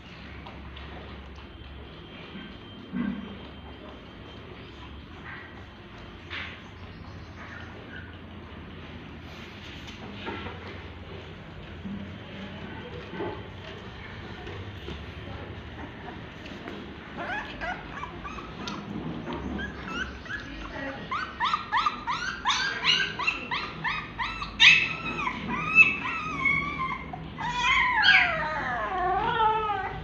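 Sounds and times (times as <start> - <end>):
puppy crying in high squeals: 17.2 - 18.8, 19.6 - 30.0.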